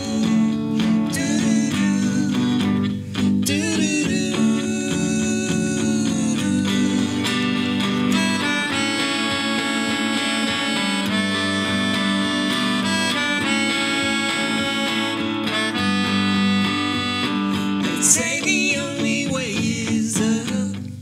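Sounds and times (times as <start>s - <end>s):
electric guitar accompaniment: 0.0s - 21.0s
melodica melody: 6.9s - 19.0s.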